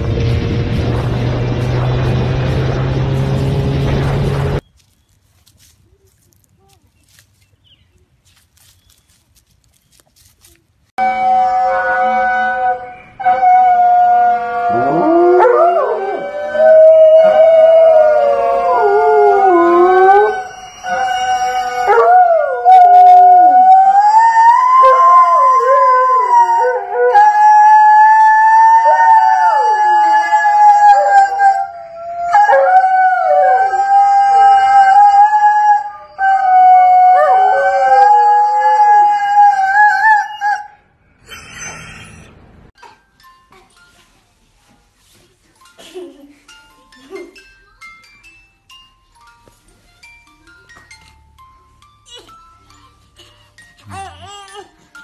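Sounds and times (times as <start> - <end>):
dogs howling: 13.2 - 40.7.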